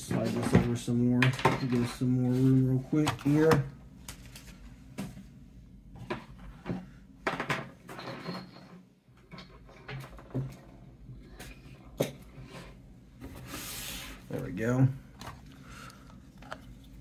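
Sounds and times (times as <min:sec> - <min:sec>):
cardboard rustling scrapes: 0:12.6 - 0:14.4.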